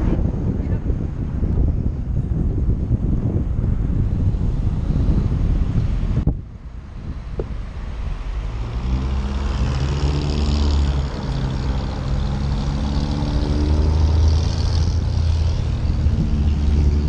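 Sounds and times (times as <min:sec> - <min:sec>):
wind and road noise: 0:00.0 - 0:17.0
car engine accelerating: 0:07.2 - 0:17.0.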